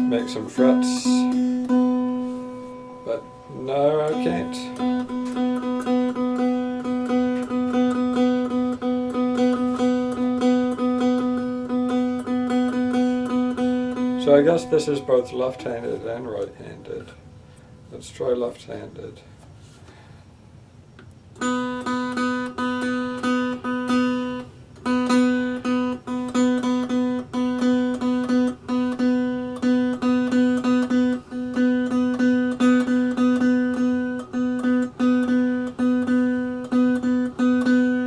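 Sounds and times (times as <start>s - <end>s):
single string plucked: 0.0s - 17.4s.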